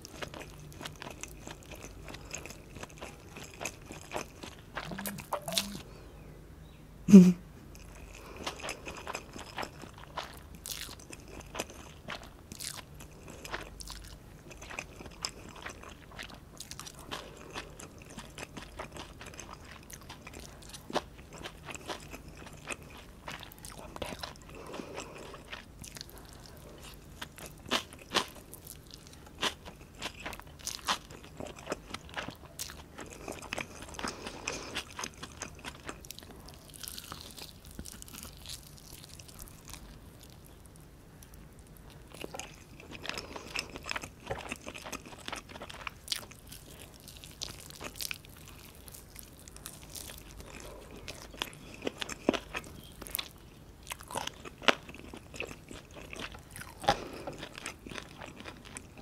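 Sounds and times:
person chewing noodles: 0.0s - 5.9s, 7.7s - 59.0s
mouth clicks and smacks: 4.8s - 5.8s.

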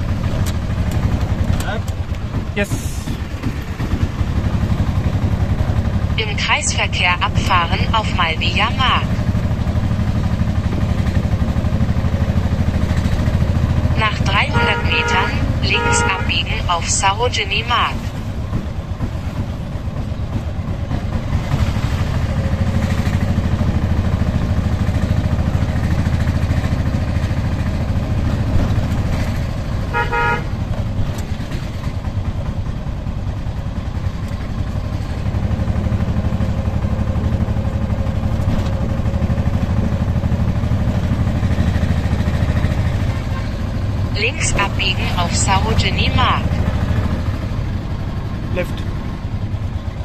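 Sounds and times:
auto-rickshaw engine running: 0.0s - 50.0s
vehicle horn honk: 14.1s - 16.5s, 29.9s - 30.6s.

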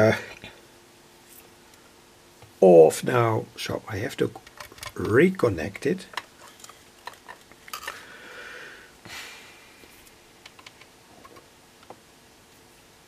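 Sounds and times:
wires rustling: 4.2s - 8.1s.

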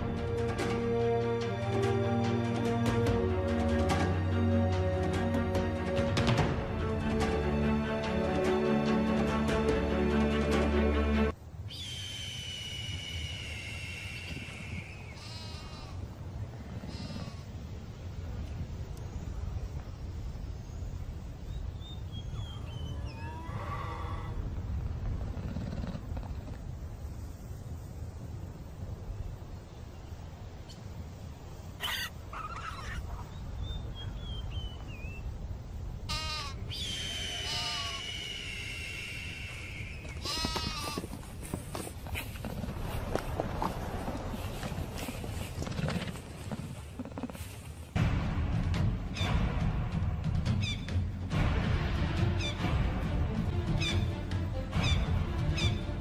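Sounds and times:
low wind-like rumble: 11.3s - 51.3s
high whistling animal call: 11.7s - 15.9s, 22.1s - 24.4s, 36.1s - 40.9s
chamois bleating: 15.2s - 16.1s, 16.8s - 17.6s, 36.1s - 38.1s, 39.5s - 41.3s
animal trill: 36.1s - 41.3s.

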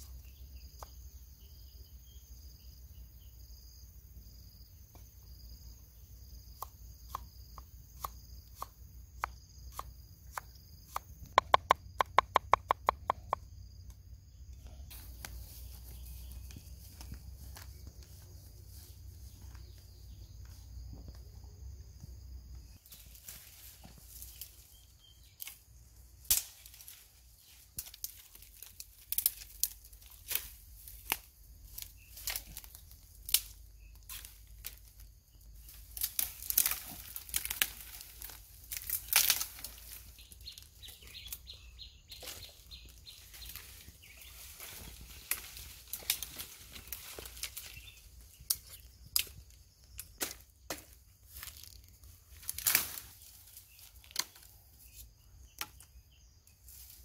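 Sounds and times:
undergrowth rustling and snapping: 22.8s - 41.5s, 42.1s - 56.0s.

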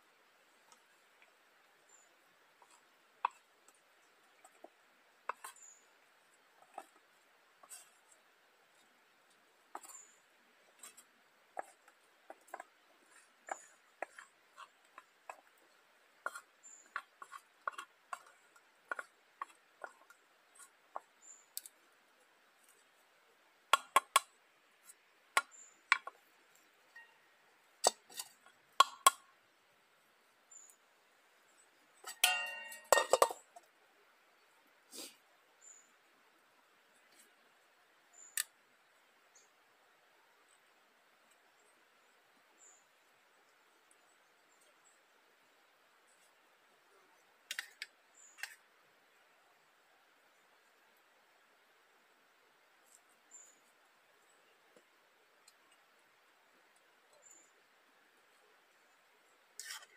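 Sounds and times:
utensils clinking on dishes: 32.1s - 33.4s.

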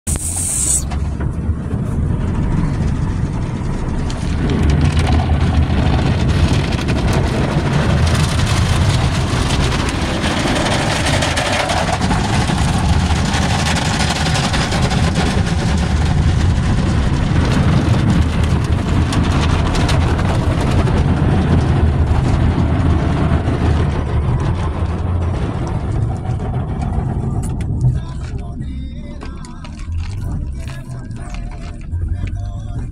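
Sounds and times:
water spray and rotating brushes: 0.1s - 0.9s
low rumble: 0.1s - 32.9s.

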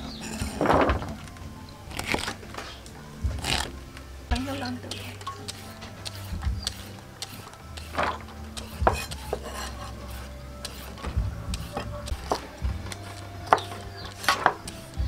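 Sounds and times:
shredder scraping carrot: 4.9s - 15.0s.

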